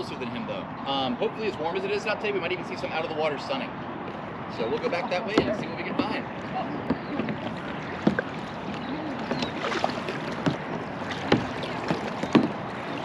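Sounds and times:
paddles dipping and splashing: 4.0 - 13.0
sharp knocks: 10.4 - 12.6.

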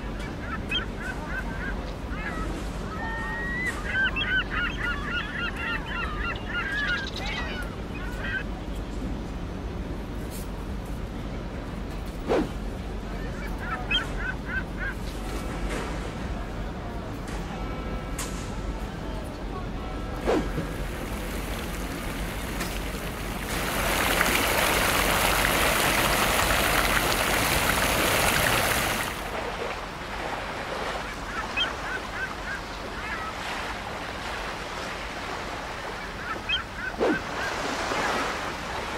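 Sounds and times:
water noise: 18.8 - 38.9.

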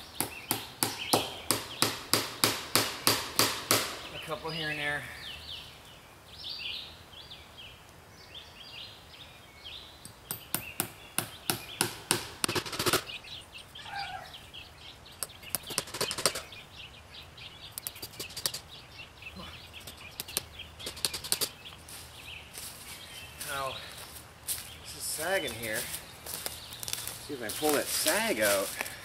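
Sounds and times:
birds chirping: 0.0 - 29.0
hammer tapping nails into wood: 0.2 - 4.0, 10.3 - 12.9.

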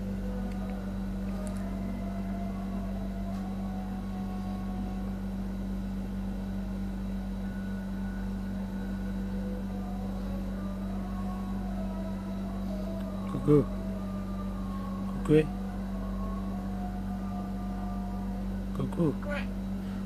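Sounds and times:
low mechanical hum: 0.0 - 20.0.

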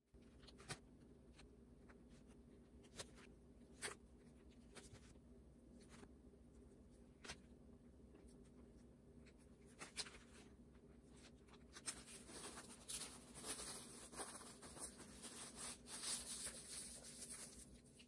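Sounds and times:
faint steady hum: 0.1 - 18.0
plastic cling wrap crinkling: 11.1 - 18.0.

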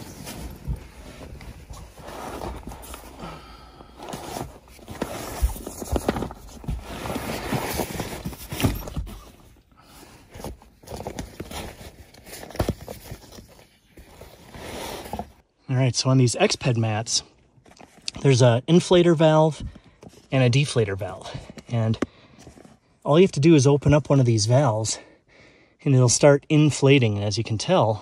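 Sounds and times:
sleeping bags rustling: 0.0 - 15.4.

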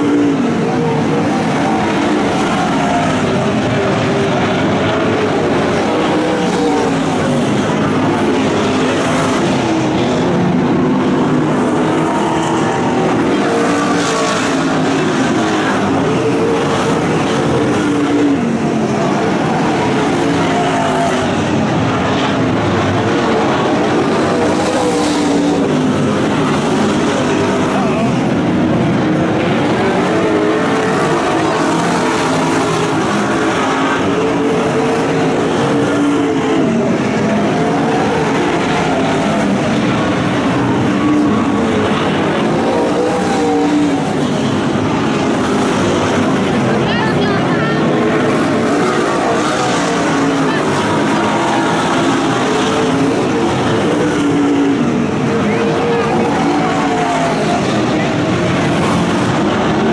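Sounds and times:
race car engines revving: 0.0 - 59.9.

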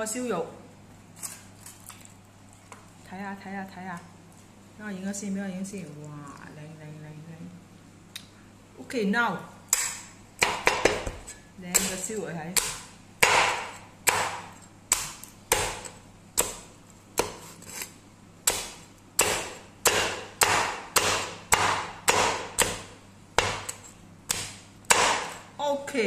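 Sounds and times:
cleaver chopping on wooden board: 9.8 - 11.2, 12.6 - 16.6, 18.5 - 25.4.

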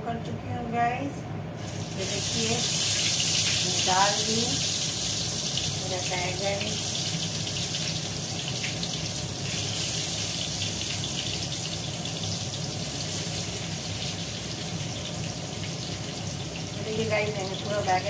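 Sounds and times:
eggplant sizzling in oil: 1.6 - 18.0.

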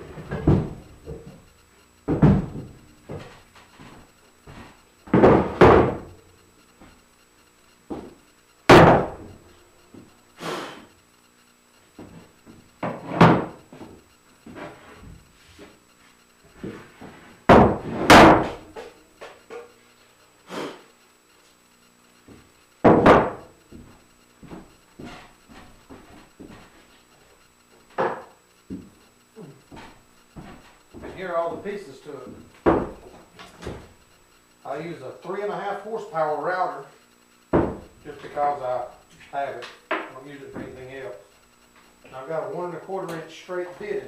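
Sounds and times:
wooden knocks and thuds: 0.1 - 1.4, 2.1 - 6.1, 7.9 - 9.3, 12.8 - 15.2, 17.5 - 18.9, 22.8 - 26.8, 27.9 - 29.0, 32.3 - 33.9, 37.5 - 37.9.

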